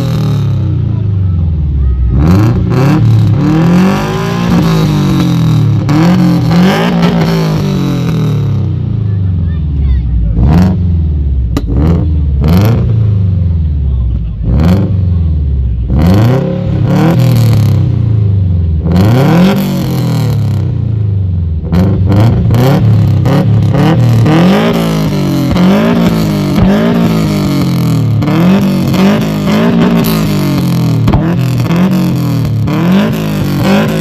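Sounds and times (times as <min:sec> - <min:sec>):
car engine revving: 0:00.0 - 0:34.0
exhaust cracks: 0:00.0 - 0:34.0.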